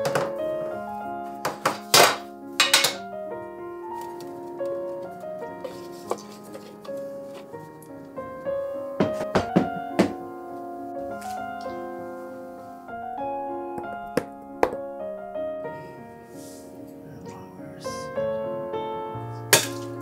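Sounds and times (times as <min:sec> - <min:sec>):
items knocking on countertop: 0:00.0 - 0:00.3, 0:01.4 - 0:03.0, 0:09.0 - 0:10.2, 0:14.2 - 0:14.8
soft piano music: 0:00.0 - 0:20.0.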